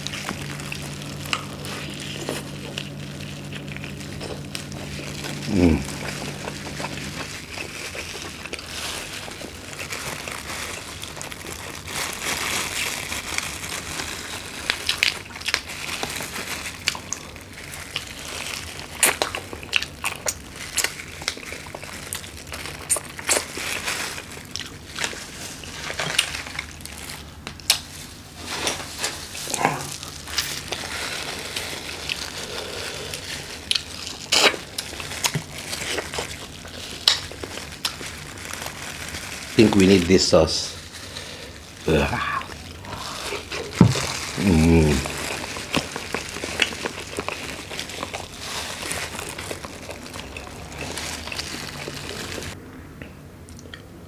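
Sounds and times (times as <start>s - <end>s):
shrimp shells cracking: 0.0s - 27.9s, 29.9s - 40.4s, 42.6s - 52.6s
plastic gloves crinkling: 0.0s - 52.6s.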